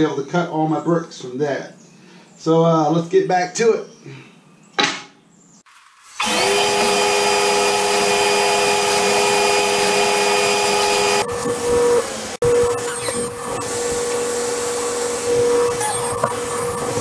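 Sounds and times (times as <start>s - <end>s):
table saw running: 6.0s - 17.0s.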